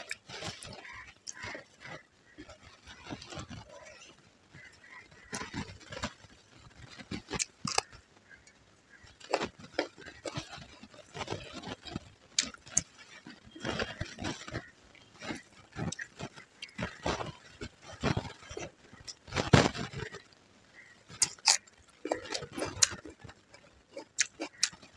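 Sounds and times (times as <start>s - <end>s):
wet chewing and lip smacks: 6.9s - 8.0s, 9.2s - 20.2s, 21.1s - 24.9s
fingers mixing rice on steel plate: 20.8s - 24.9s.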